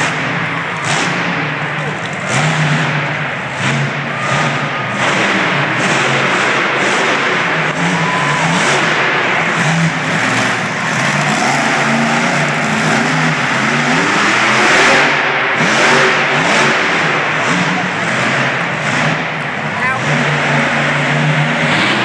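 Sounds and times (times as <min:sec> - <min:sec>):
truck engine revving hard: 0:00.0 - 0:22.0.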